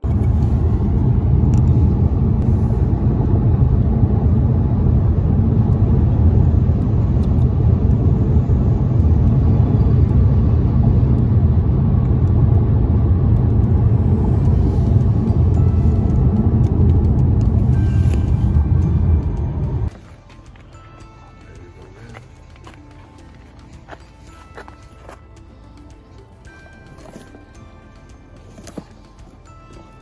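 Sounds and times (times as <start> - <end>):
car road and tyre noise: 0.0 - 30.0.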